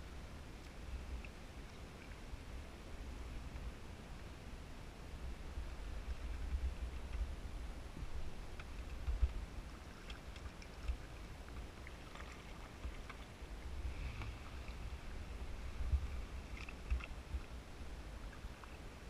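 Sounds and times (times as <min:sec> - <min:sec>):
low steady rumble: 0:00.0 - 0:19.0
paddle splashes and drips: 0:08.4 - 0:15.2, 0:16.2 - 0:17.6.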